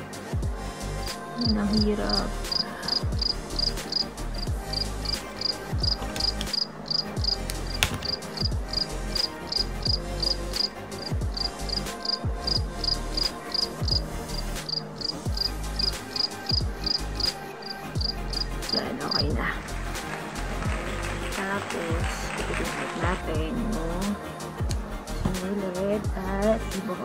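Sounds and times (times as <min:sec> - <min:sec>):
background music with beat: 0:00.0 - 0:27.0
high-pitched insect chirping: 0:01.4 - 0:19.3.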